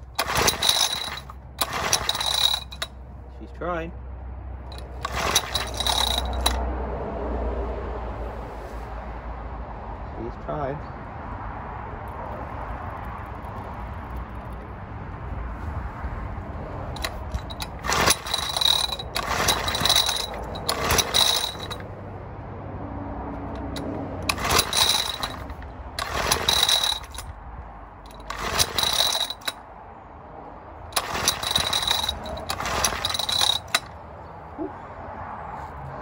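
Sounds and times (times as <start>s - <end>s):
engine recoil starter pulls: 0.0s - 3.0s, 4.7s - 6.6s, 16.9s - 21.9s, 23.4s - 27.4s, 28.0s - 29.7s, 30.9s - 34.0s.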